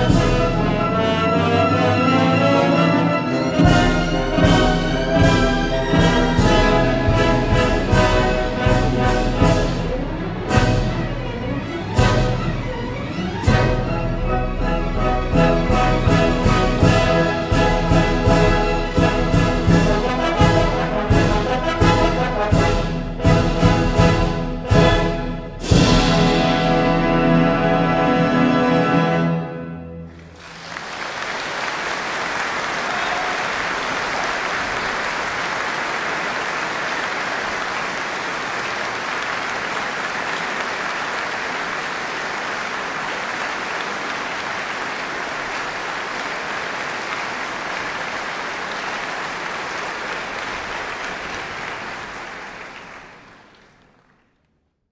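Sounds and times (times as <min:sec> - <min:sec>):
audience applauding: 0:30.1 - 0:54.4.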